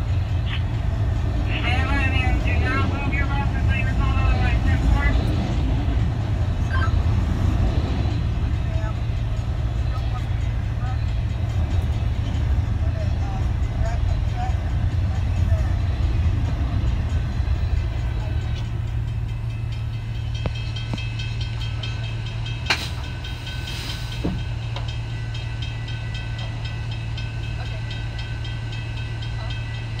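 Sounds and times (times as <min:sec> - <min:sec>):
train wheels rumbling on rails: 0:00.0 - 0:30.0
sharp rail clacks: 0:20.3 - 0:23.3.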